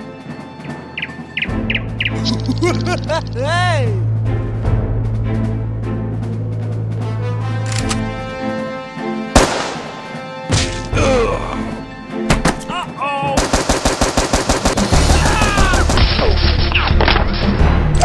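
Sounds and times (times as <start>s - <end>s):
background music: 0.0s - 18.0s
gunshot: 9.4s - 9.9s
automatic gunfire burst: 13.4s - 14.9s.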